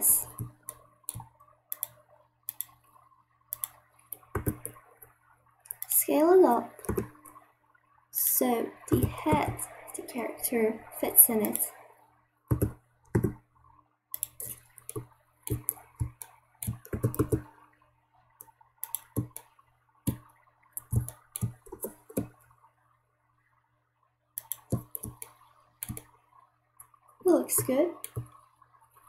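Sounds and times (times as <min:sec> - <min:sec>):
mouse and keyboard clicks: 0:00.2 - 0:02.8, 0:03.5 - 0:04.8, 0:06.8 - 0:07.1, 0:14.2 - 0:17.4, 0:18.8 - 0:19.5, 0:24.4 - 0:26.1, 0:27.6 - 0:28.4.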